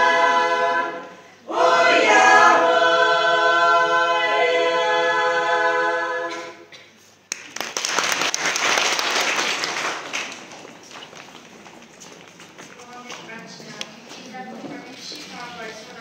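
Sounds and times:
women's choir singing: 0:00.0 - 0:06.7
audience applause: 0:07.3 - 0:11.6.

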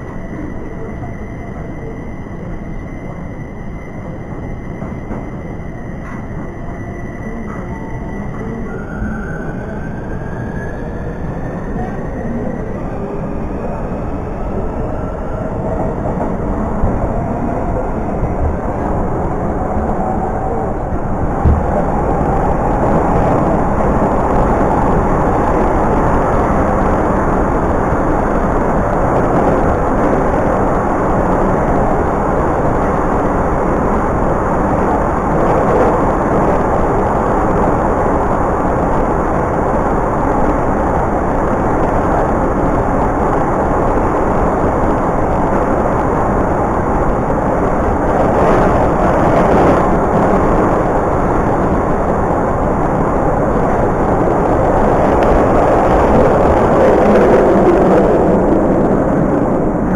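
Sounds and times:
train wheels rumbling on rails: 0:00.0 - 0:59.9
thump: 0:21.4 - 0:21.7.

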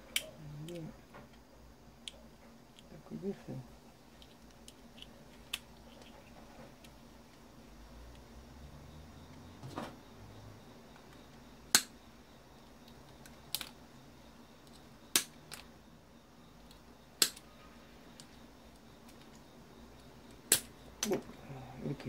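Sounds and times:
plastic clicks and snaps: 0:04.2 - 0:06.2, 0:12.9 - 0:13.8, 0:16.7 - 0:17.4, 0:20.5 - 0:21.3.

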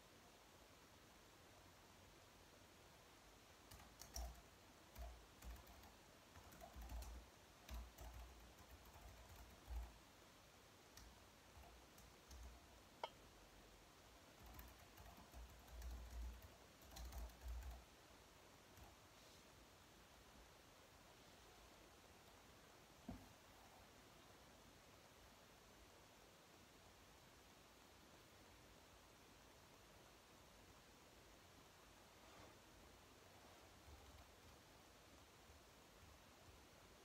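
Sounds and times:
soft keyboard typing clicks: 0:03.7 - 0:10.0, 0:10.9 - 0:13.2, 0:14.3 - 0:17.9.

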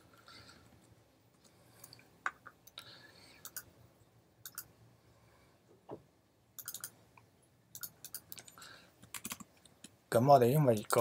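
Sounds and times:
faint room noise: 0:00.0 - 0:11.0
keyboard and mouse clicks: 0:03.4 - 0:03.7, 0:04.4 - 0:04.7, 0:06.6 - 0:07.0, 0:07.7 - 0:10.0.

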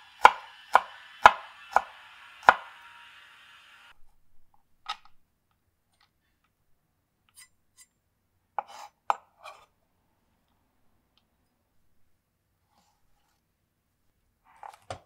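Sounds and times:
knife scraping on wooden board: 0:08.6 - 0:09.7.

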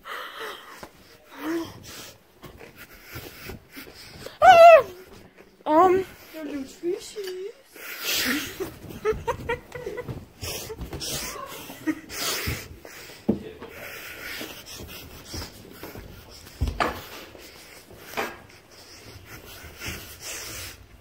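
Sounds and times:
footsteps on carpeted stairs: 0:00.8 - 0:06.8, 0:08.4 - 0:21.0
heavy hissing breaths: 0:07.6 - 0:08.8, 0:10.4 - 0:21.0.

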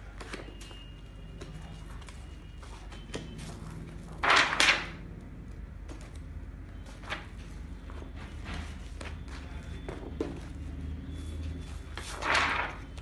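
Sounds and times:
paper page swish: 0:12.0 - 0:12.9.

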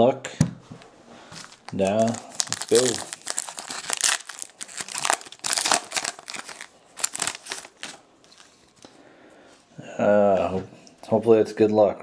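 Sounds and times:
foil wrapper crinkling: 0:01.4 - 0:08.9.

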